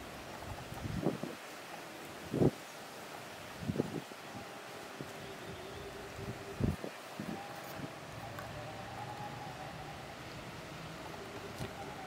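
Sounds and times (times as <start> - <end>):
wind buffeting microphone: 0.2 - 1.5, 2.1 - 2.7, 3.4 - 8.2.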